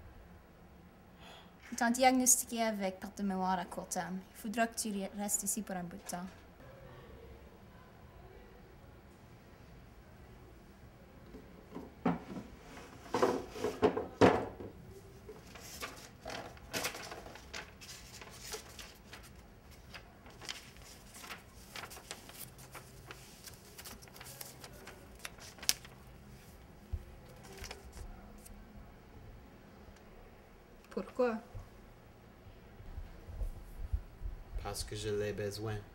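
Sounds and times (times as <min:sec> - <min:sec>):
wooden drawer knocked and opened: 0:11.7 - 0:12.5, 0:13.1 - 0:14.8
drawer clattering: 0:11.8 - 0:14.7
paper rustling and crinkling: 0:15.3 - 0:28.5.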